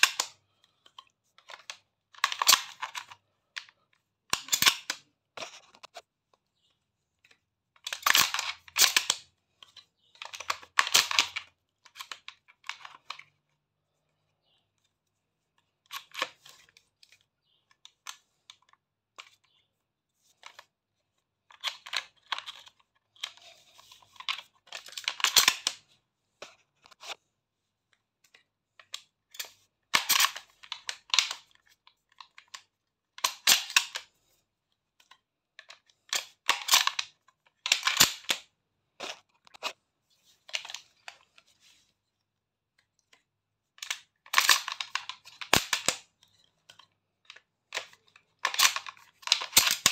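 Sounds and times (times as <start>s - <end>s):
shotgun action clicking and sliding: 0.9s - 3.2s, 4.3s - 5.0s, 35.0s - 38.5s, 43.8s - 49.9s.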